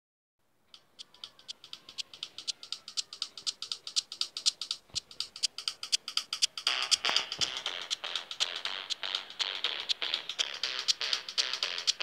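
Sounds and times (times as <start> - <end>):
dry rattling percussion clicks: 0.7 - 8.4.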